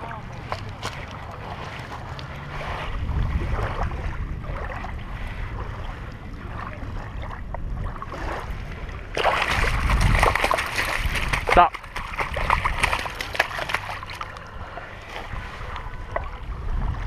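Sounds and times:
water lapping at shoreline: 0:00.0 - 0:17.0
wind rumbling on microphone: 0:00.0 - 0:17.0
fish splashing in shallows: 0:09.1 - 0:16.4.

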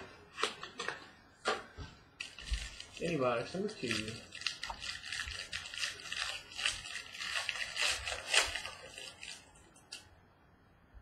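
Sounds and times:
plastic wrap crinkling: 0:02.2 - 0:10.1.

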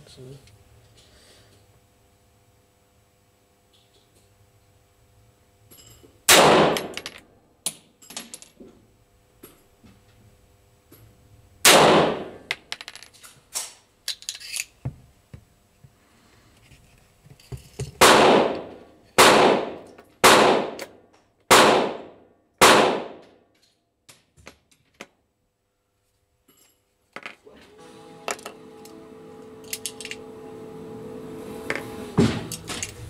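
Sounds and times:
pistol shots with echo: 0:06.3 - 0:07.0, 0:11.7 - 0:12.4, 0:18.0 - 0:18.6, 0:19.2 - 0:20.8, 0:21.5 - 0:23.2.

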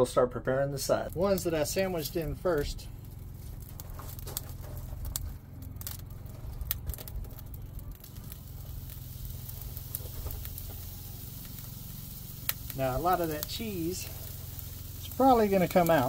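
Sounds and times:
meat sizzling on a grill: 0:00.8 - 0:16.0
taps and clinks on grill grate: 0:03.1 - 0:16.0.

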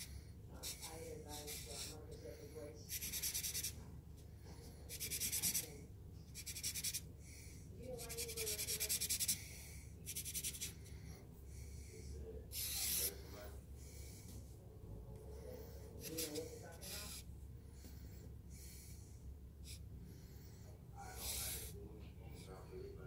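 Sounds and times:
marker scratching on paper: 0:00.0 - 0:03.8, 0:04.9 - 0:07.1, 0:07.9 - 0:11.0, 0:12.5 - 0:13.3, 0:15.6 - 0:17.3, 0:19.6 - 0:19.8, 0:21.1 - 0:21.8.

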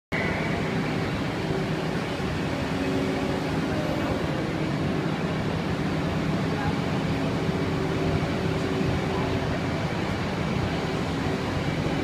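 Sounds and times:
diesel engine running: 0:00.1 - 0:12.0.

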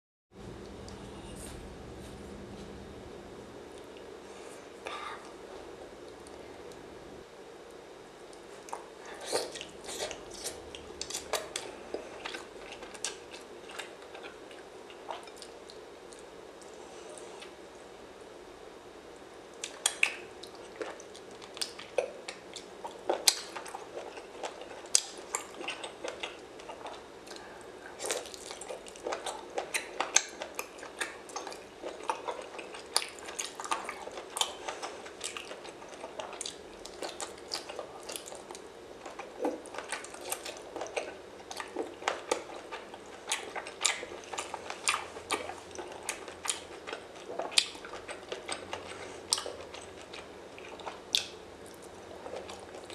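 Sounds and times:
steady low hiss: 0:00.4 - 0:52.9
clicks and smacks of chewing: 0:08.3 - 0:16.8, 0:19.5 - 0:52.9.

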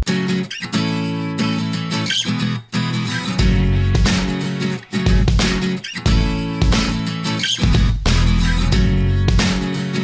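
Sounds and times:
music with pulsing bass line: 0:03.1 - 0:10.0.

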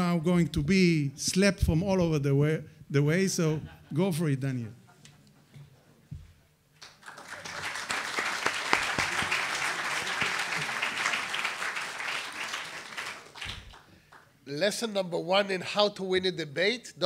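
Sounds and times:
audience applauding: 0:06.8 - 0:14.2.

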